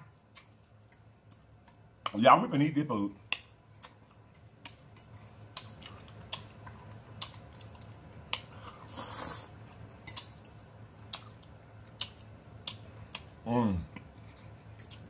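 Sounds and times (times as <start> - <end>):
wet chewing smacks: 3.3 - 13.3.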